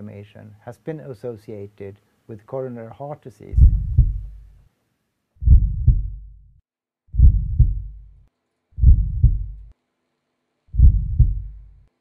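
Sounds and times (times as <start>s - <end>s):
heartbeat thumps: 3.5s - 4.6s, 5.4s - 6.5s, 7.1s - 8.2s, 8.8s - 9.7s, 10.7s - 11.8s.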